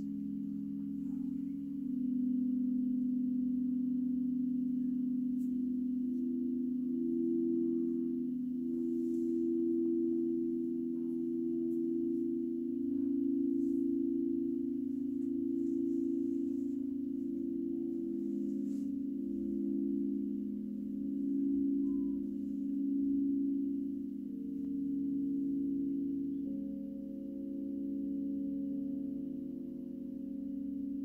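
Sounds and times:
higher singing bowl pulsing: 0.0s - 31.0s
singing bowls ringing: 0.0s - 31.0s.

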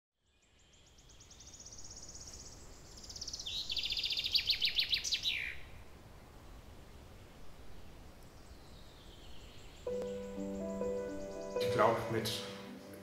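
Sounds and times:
faint outdoor background noise: 0.2s - 13.0s
songbird singing: 0.2s - 13.0s.

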